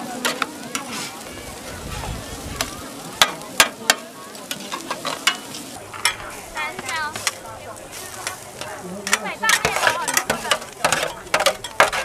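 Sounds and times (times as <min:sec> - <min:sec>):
noodles sizzling in a wok: 0:00.0 - 0:12.0
metal spatula clanking on pan: 0:00.2 - 0:00.9, 0:03.2 - 0:07.4, 0:08.2 - 0:12.0.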